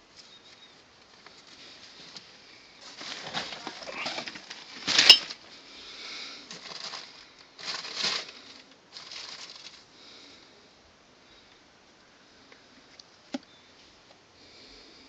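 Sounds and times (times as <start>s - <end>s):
plastic bag crinkling: 2.8s - 5.5s, 6.5s - 9.9s.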